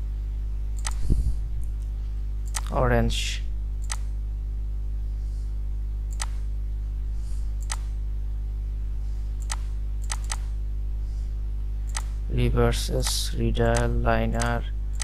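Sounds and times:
steady low hum: 0:00.0 - 0:15.0
computer mouse clicking: 0:00.8 - 0:01.0, 0:02.4 - 0:02.7, 0:03.8 - 0:04.1, 0:06.1 - 0:06.4, 0:07.6 - 0:07.9, 0:09.4 - 0:10.5, 0:11.9 - 0:12.2, 0:13.0 - 0:15.0.

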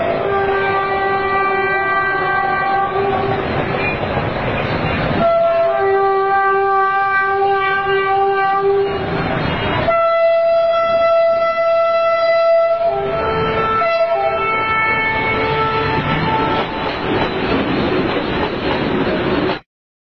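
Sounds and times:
locomotive horn blasts: 0:00.0 - 0:03.4, 0:05.2 - 0:16.8
train running noise: 0:00.0 - 0:19.6.

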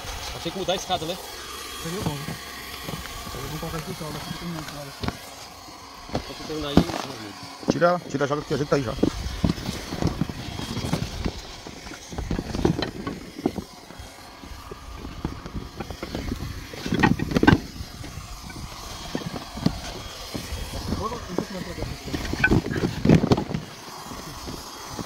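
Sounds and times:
rope ladder dragged on plastic liner: 0:01.8 - 0:25.0
wooden rungs knocking: 0:15.8 - 0:17.7.

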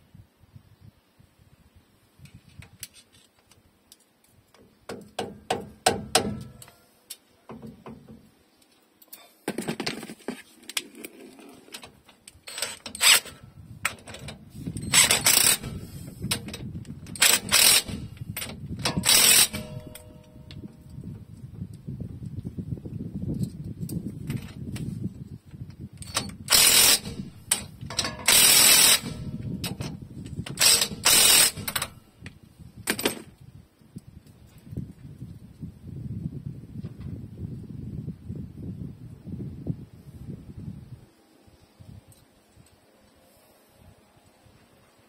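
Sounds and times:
socket ratchet clicking: 0:14.8 - 0:16.4, 0:17.1 - 0:20.1, 0:26.0 - 0:29.7, 0:30.5 - 0:32.0
sharp metal clinks: 0:19.0 - 0:20.5.

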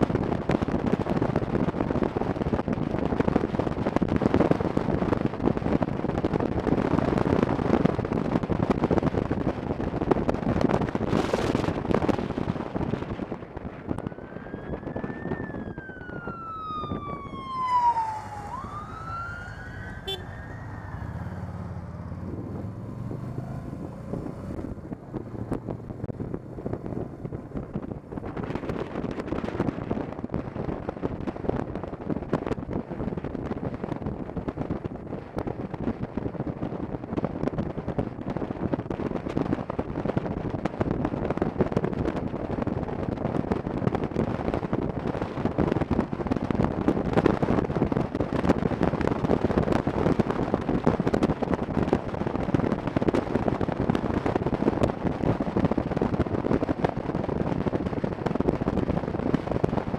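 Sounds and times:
motorcycle road noise: 0:00.0 - 0:59.9
wind rushing over microphone: 0:00.0 - 0:59.9
siren wailing: 0:13.8 - 0:21.8.

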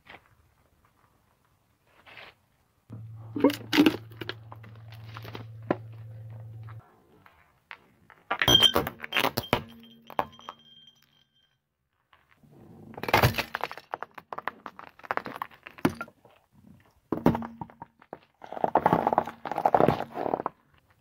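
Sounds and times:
clay pot cracking and breaking: 0:13.0 - 0:16.4
tyre rolling on asphalt: 0:18.1 - 0:20.7.

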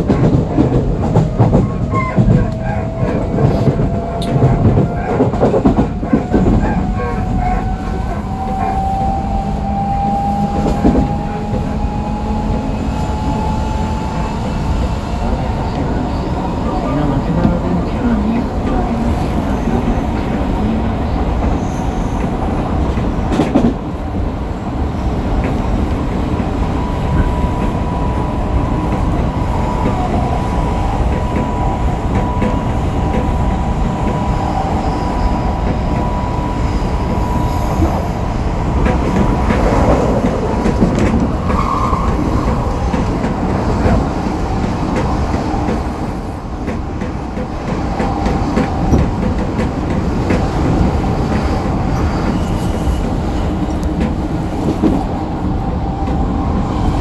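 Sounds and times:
train wheels rolling on rail: 0:00.0 - 0:57.0
rail-joint clicks: 0:17.0 - 0:24.3, 0:25.1 - 0:55.2.

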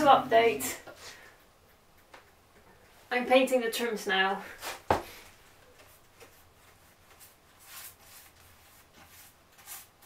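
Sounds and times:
paintbrush swishing: 0:06.3 - 0:10.0.

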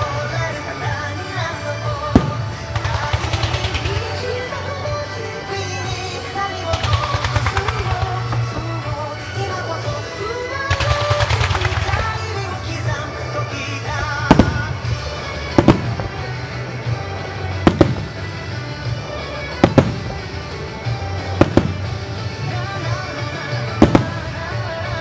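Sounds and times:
music with steady bass: 0:00.0 - 0:25.0
firework shells bursting: 0:02.2 - 0:04.4, 0:06.6 - 0:09.0.

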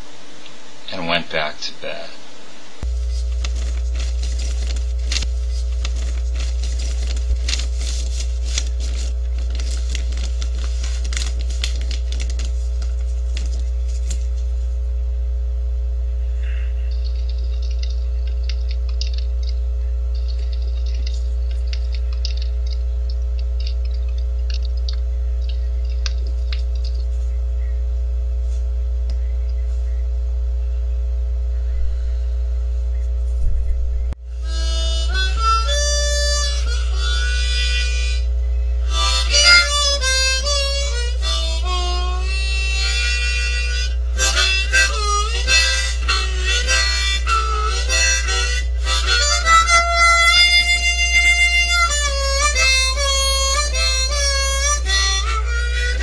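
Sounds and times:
low electrical hum: 0:00.0 - 0:56.0
crackling clicks: 0:16.9 - 0:27.1
faint scattered chirping: 0:28.7 - 0:34.2.

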